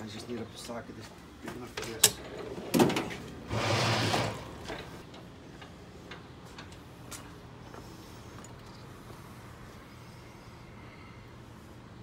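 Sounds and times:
tools rattling and scraping: 1.4 - 7.4.

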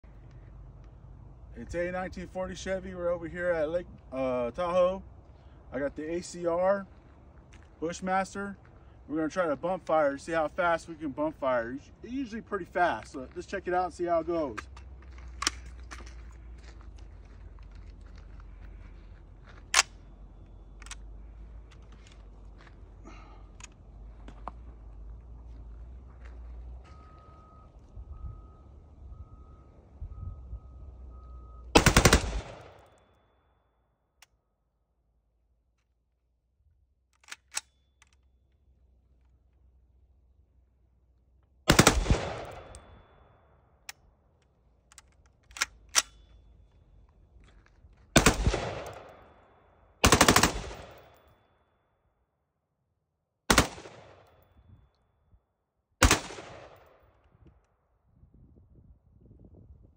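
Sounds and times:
rifle firing rapid bursts: 31.8 - 32.8, 41.7 - 42.7, 48.2 - 49.1, 50.0 - 51.1, 53.5 - 54.1, 56.0 - 56.8.

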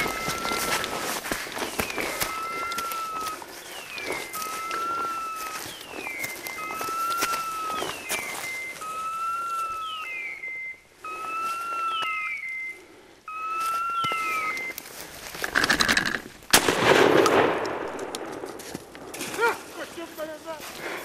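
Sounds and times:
shotgun shot: 16.5 - 18.5.

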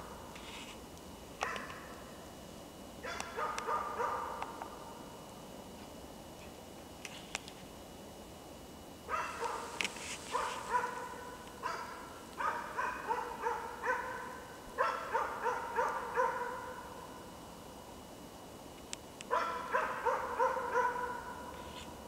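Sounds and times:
dog barking sharply: 1.4 - 1.8, 3.0 - 4.4, 9.1 - 16.8, 19.3 - 21.4.

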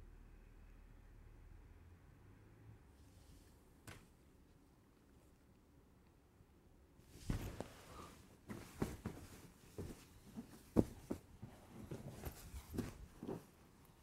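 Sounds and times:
fabric rustling: 7.0 - 14.0
soft thumps of cushions: 7.1 - 13.6.

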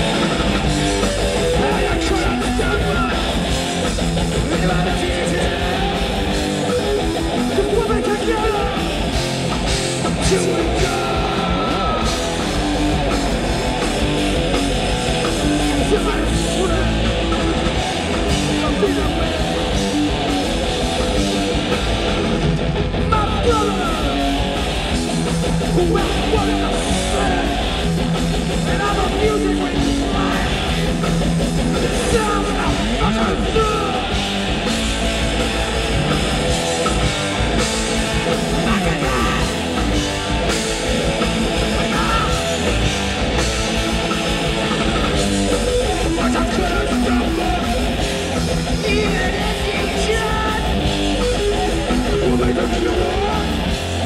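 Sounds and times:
bass guitar: 0.0 - 54.0
distorted electric guitar: 0.0 - 54.0
drums: 0.0 - 54.0.

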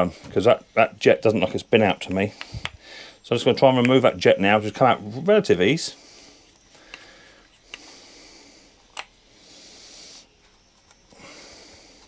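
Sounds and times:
soft breathing: 2.2 - 3.2, 5.8 - 12.0.

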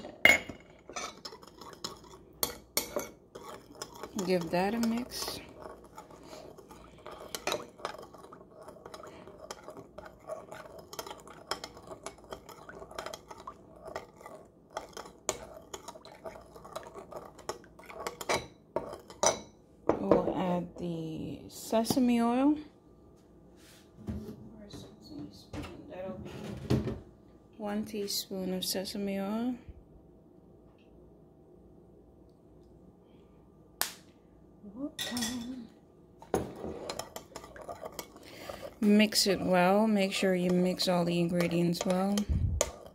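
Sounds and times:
metal spoon stirring in a bowl: 0.0 - 20.5, 36.2 - 42.9.

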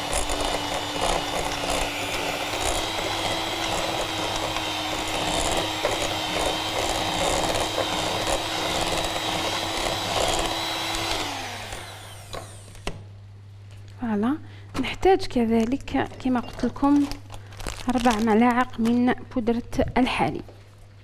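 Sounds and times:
electric hand mixer running: 0.0 - 12.9.

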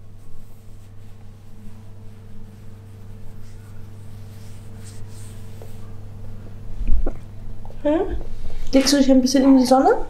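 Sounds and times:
low steady hum: 0.0 - 10.0
hand stroking cat fur: 0.2 - 6.0.

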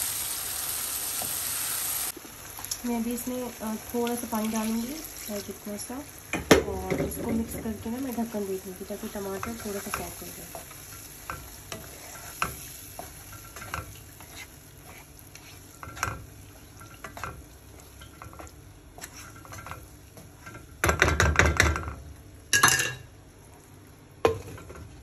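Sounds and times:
light sizzling: 0.0 - 20.6
wooden spatula scraping pan: 11.8 - 16.2, 16.8 - 19.8
rapid knocking against pan: 20.8 - 21.9.

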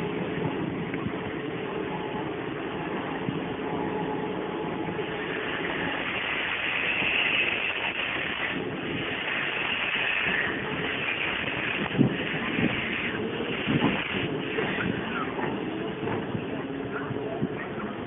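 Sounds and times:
turntable mechanical rumbling: 0.0 - 18.0
steam hiss: 4.8 - 16.2.

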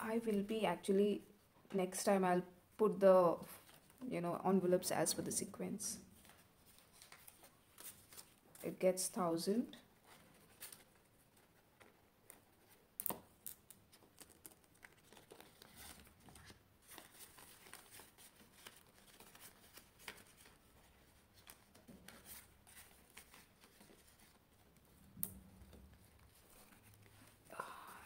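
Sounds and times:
plastic envelope crinkling: 13.1 - 24.4
paper banknotes rustling: 13.8 - 25.0.

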